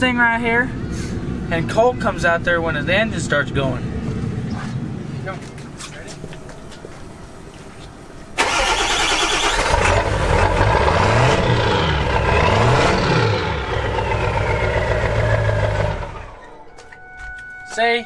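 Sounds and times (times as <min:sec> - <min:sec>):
truck engine starting and revving: 0:08.4 - 0:16.6.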